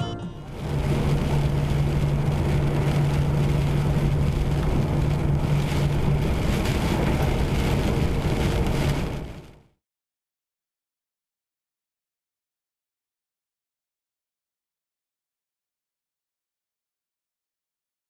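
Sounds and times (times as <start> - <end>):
engine drone: 0.0 - 6.6.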